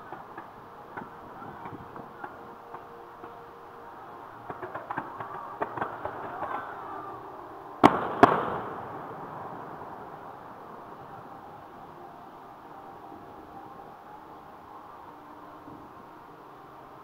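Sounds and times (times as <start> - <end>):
distant fireworks crackling pops: 0.0 - 12.0
loud firework bangs with echo: 7.8 - 9.4.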